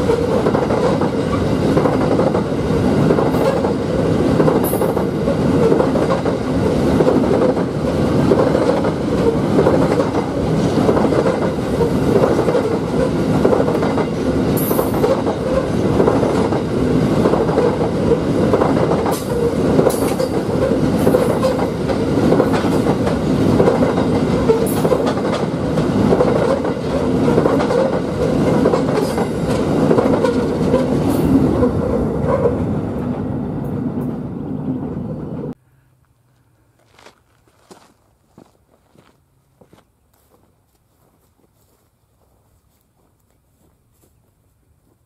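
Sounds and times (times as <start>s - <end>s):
wheels clattering over rail joints: 0.0s - 32.6s
train wagons rumbling past: 0.0s - 35.6s.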